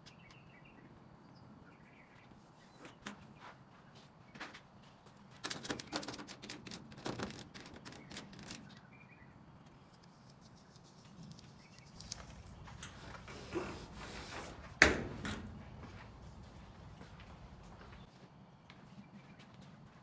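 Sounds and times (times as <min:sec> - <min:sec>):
transfer tape crackling: 0:05.4 - 0:08.9.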